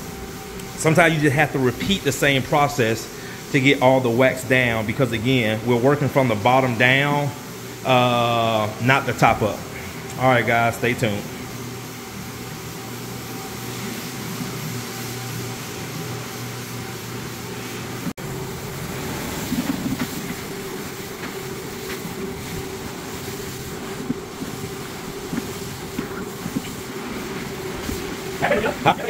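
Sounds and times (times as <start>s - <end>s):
floor machine hum: 0.0s - 29.0s.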